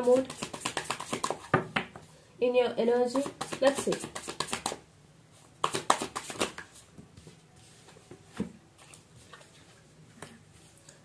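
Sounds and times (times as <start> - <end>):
cards being shuffled: 0.0 - 1.5, 3.2 - 4.8, 5.6 - 6.8.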